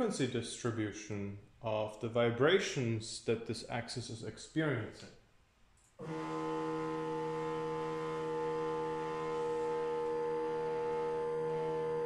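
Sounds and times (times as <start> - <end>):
cnc mill axis drive whine: 6.0 - 12.0.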